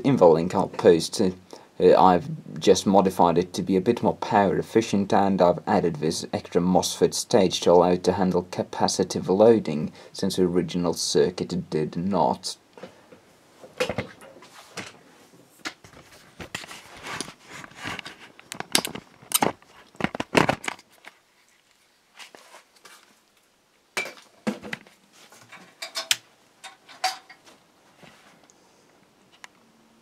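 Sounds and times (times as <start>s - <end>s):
handling clicks and knocks: 17.9s - 21.2s, 24.0s - 27.4s.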